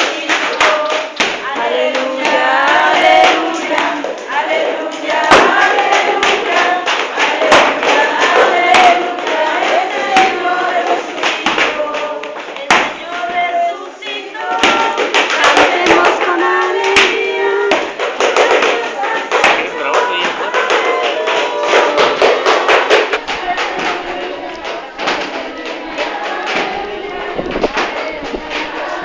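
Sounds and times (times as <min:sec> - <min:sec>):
group singing a hymn: 0:00.0 - 0:29.0
sharp percussive knocks: 0:14.6 - 0:29.0.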